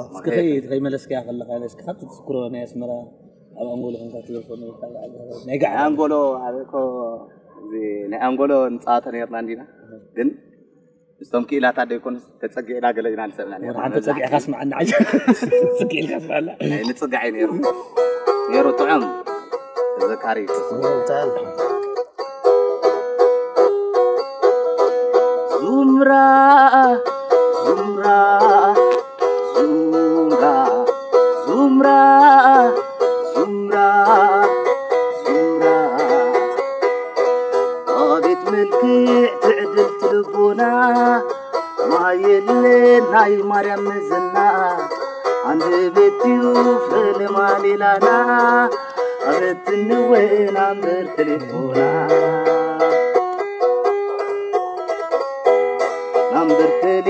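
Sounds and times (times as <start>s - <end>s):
plucked lyre melody: 13.3s - 57.0s
person singing: 25.5s - 36.7s, 37.8s - 53.4s, 56.2s - 57.0s.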